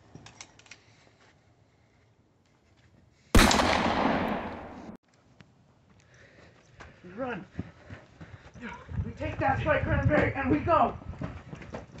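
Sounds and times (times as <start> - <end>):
gunshot with echo: 3.4 - 5.0.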